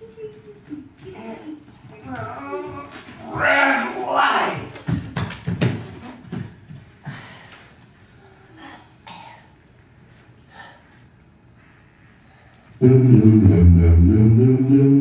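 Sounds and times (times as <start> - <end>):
person coughing: 9.0 - 9.5.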